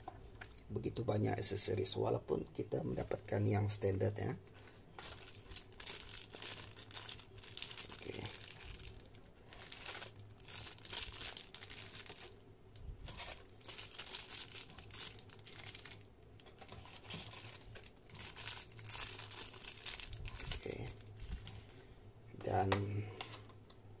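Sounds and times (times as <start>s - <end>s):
plastic bags crinkling: 4.5s - 12.4s, 13.0s - 22.0s.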